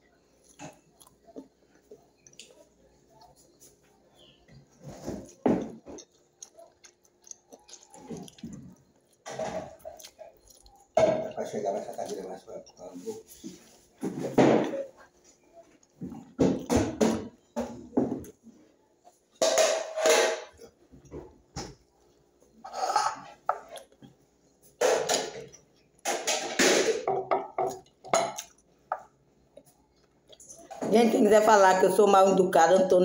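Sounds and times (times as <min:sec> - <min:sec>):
chewing and mouth noises: 0:00.3 - 0:03.6, 0:04.4 - 0:13.4, 0:27.7 - 0:30.7.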